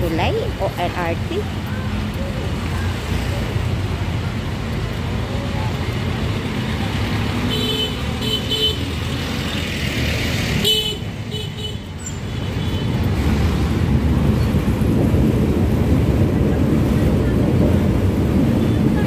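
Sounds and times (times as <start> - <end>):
traffic rumble: 0.0 - 19.0
vehicle horn toots: 10.6 - 11.9.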